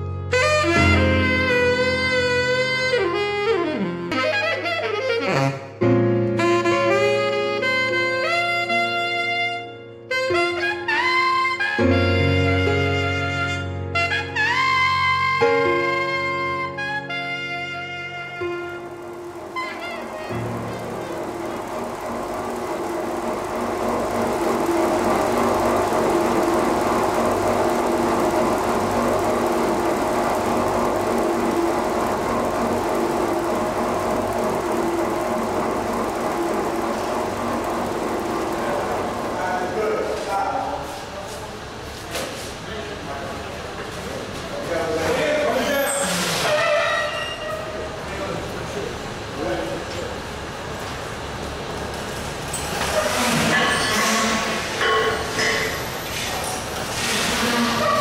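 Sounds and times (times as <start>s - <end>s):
instrumental melody of held notes: 0.2s - 39.3s
motor and gearbox hum: 18.3s - 40.4s.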